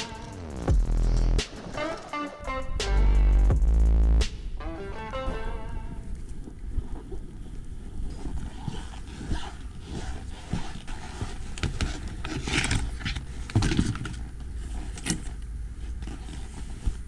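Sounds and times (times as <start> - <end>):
scuffs and knocks of gear: 6.3 - 17.0.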